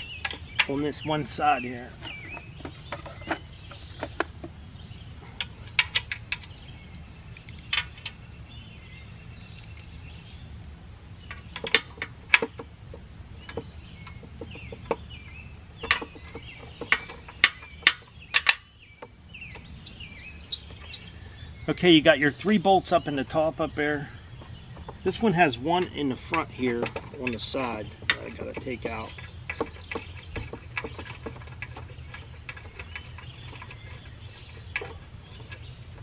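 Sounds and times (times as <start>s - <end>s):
high insect trill: 0.0s - 36.0s
metal clicks of hand tools and bolts: 0.2s - 0.9s, 5.4s - 8.2s, 11.3s - 15.0s, 15.8s - 18.7s, 24.4s - 36.0s.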